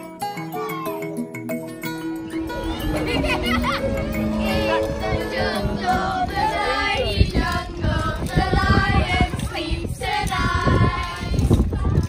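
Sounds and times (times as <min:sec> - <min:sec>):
low rumble: 0:02.4 - 0:08.2
girls singing together: 0:02.8 - 0:12.0.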